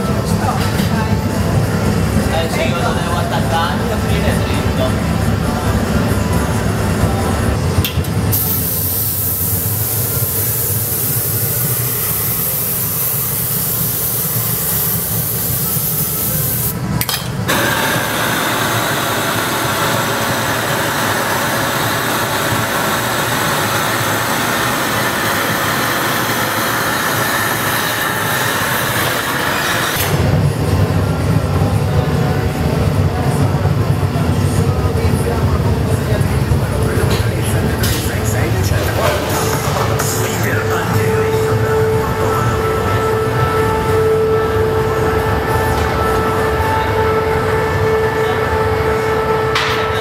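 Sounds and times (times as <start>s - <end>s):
gas burners rushing: 0.0s - 50.0s
torch flame roaring: 6.2s - 30.9s.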